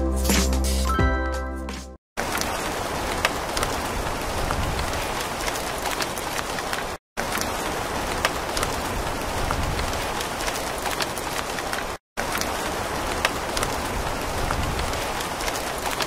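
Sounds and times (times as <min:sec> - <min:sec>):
rain drop hits: 0:02.2 - 0:16.0
steady rain hiss: 0:02.2 - 0:16.0.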